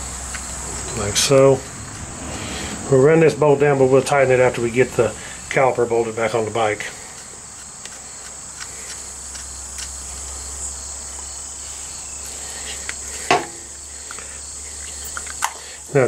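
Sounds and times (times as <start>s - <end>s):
sharp knock: 13.3s - 13.7s.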